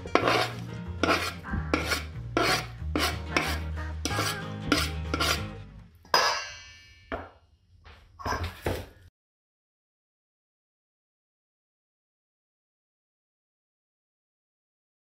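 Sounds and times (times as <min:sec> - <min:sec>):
fork scraping and mashing in bowl: 0:00.0 - 0:05.6.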